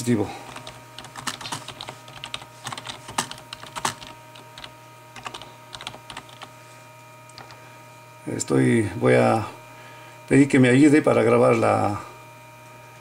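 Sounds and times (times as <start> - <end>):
computer keyboard typing: 0.5 - 6.5, 7.3 - 7.6.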